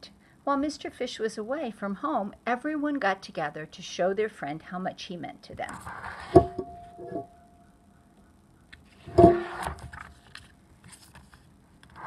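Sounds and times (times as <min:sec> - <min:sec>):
sharp knock: 0:06.3 - 0:07.2
short ring: 0:06.3 - 0:07.4, 0:09.1 - 0:09.8
book pages rustling: 0:08.8 - 0:12.0.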